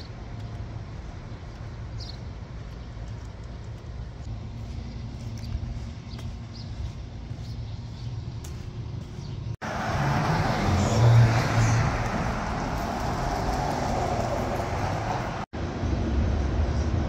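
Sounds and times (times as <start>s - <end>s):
traffic hum: 0.0s - 17.0s
car passing: 9.0s - 17.0s.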